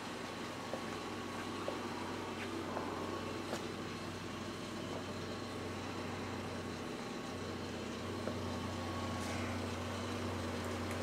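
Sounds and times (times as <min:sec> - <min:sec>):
electrical hum and fan noise: 0:00.0 - 0:11.0.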